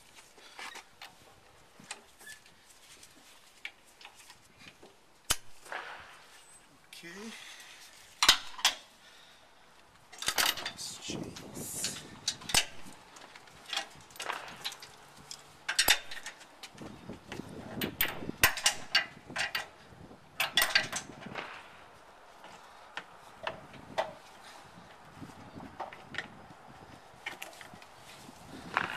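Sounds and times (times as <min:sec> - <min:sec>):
safety chains rattling: 0:10.2 - 0:11.0, 0:20.4 - 0:21.2
wrench clinking on metal fittings: 0:20.4 - 0:21.1.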